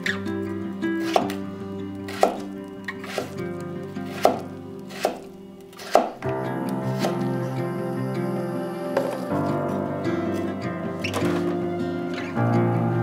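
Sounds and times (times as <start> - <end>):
soft background music: 0.0 - 13.0
knife chopping on wooden board: 1.0 - 1.4, 2.1 - 2.5, 4.1 - 6.2.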